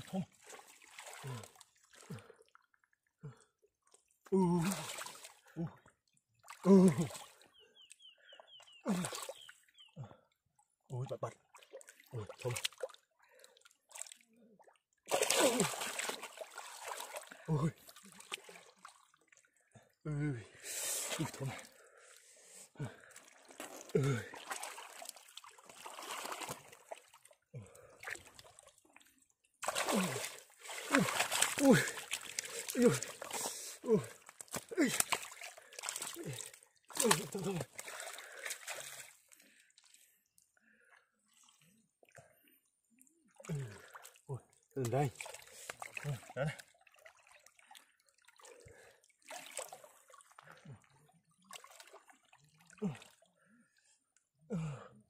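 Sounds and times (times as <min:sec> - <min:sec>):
water splashing: 0:00.0 - 0:02.2, 0:15.1 - 0:19.4, 0:22.9 - 0:27.2, 0:29.6 - 0:39.2
mud squelching and sloshing: 0:00.0 - 0:02.3, 0:08.8 - 0:09.4, 0:15.1 - 0:19.1, 0:22.8 - 0:28.6, 0:29.6 - 0:39.6.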